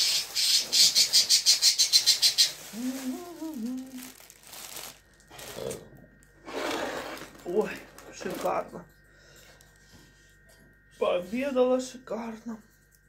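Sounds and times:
plastic bag crinkling: 0.0 - 5.8, 6.5 - 8.8
person humming: 2.6 - 4.3.

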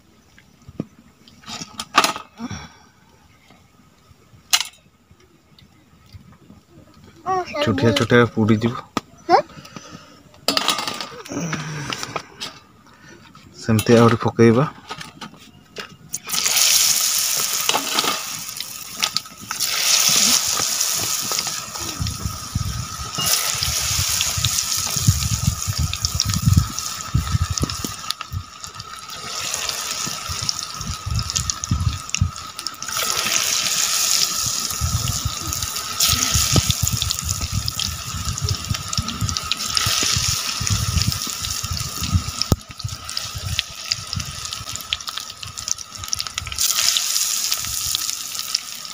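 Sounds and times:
food sizzling in hot oil: 16.2 - 48.9.

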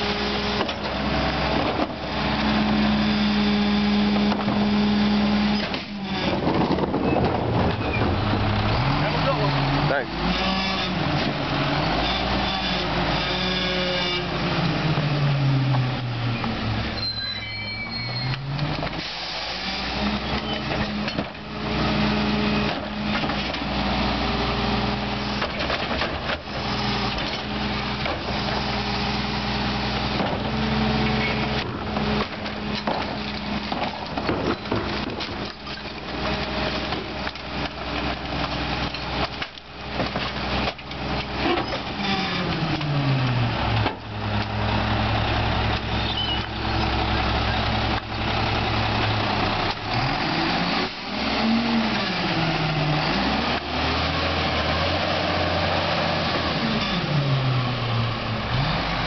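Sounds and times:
garbage truck diesel engine: 0.0 - 59.0
trash cart knocking and clattering: 5.6 - 8.3, 30.1 - 30.6, 31.4 - 38.2
high squeal: 17.0 - 18.5, 46.0 - 46.5.

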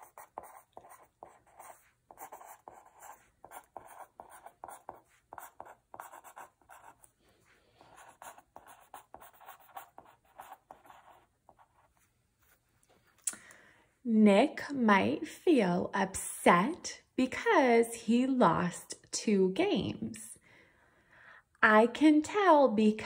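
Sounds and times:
pen scratching on paper: 0.0 - 12.6.

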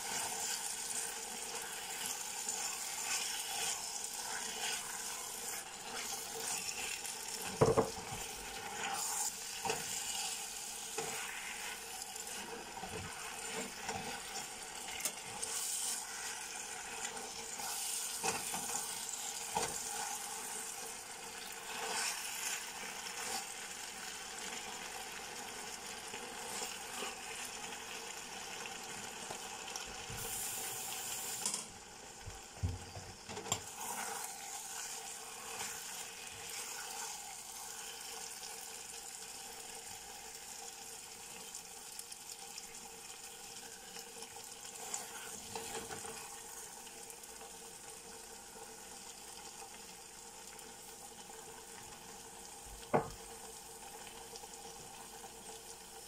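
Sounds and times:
spatula scraping pan: 0.0 - 20.7, 21.4 - 23.6, 32.9 - 37.2
stir-fry sizzling in pan: 0.0 - 56.0
spatula knocking pan: 7.5 - 8.1, 52.9 - 53.2.

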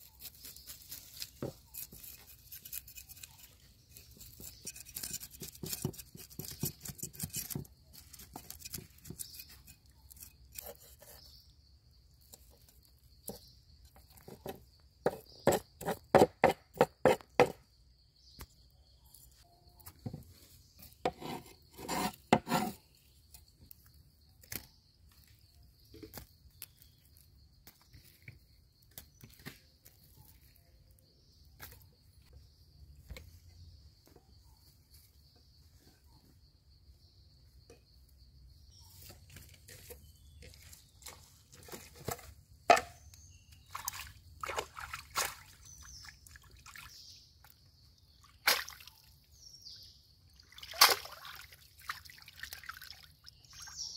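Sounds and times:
cleaver scraping fish scales: 0.0 - 11.5, 13.2 - 17.3, 20.8 - 23.0.

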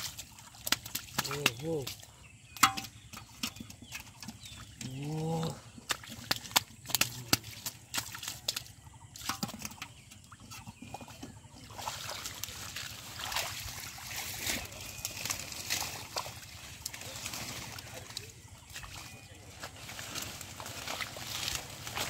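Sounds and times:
fish thrashing in muddy water: 0.0 - 22.0
rustling of water plants: 0.0 - 22.0
hands sloshing through water: 10.6 - 22.0.

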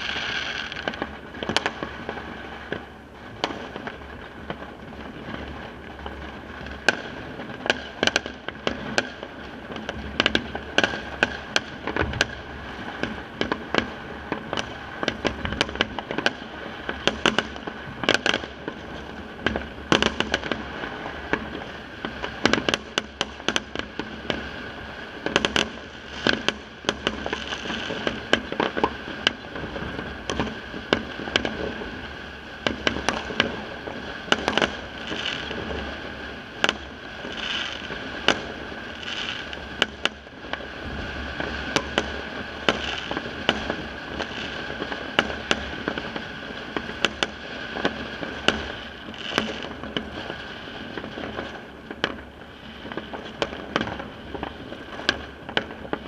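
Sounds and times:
firecracker bangs: 0.0 - 9.2, 25.2 - 56.0
distant fireworks popping: 0.0 - 56.0.

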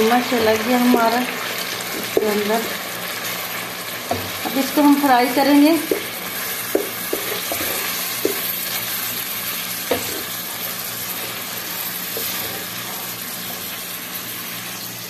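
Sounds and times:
minced meat sizzling in a pot: 0.0 - 15.0
wooden spatula knocking on pot: 5.8 - 8.5.

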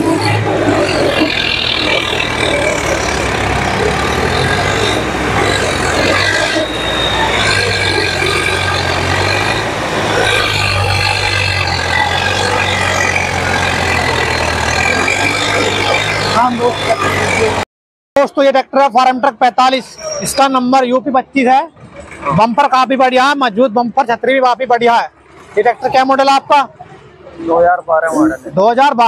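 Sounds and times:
diesel tractor engine humming: 0.0 - 17.6.

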